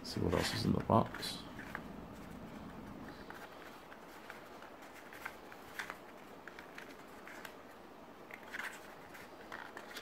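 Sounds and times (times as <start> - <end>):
card envelope rustling and clicking: 2.9 - 10.0.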